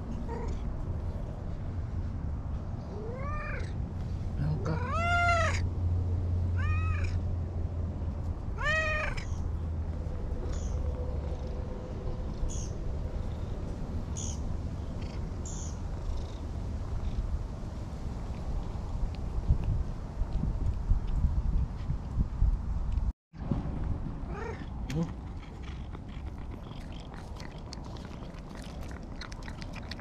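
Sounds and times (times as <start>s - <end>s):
cat meowing: 4.7s - 5.6s, 6.6s - 7.2s, 8.6s - 9.3s.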